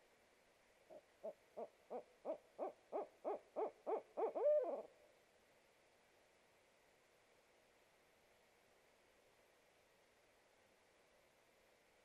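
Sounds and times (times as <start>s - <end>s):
owl hooting: 0.9s - 4.9s.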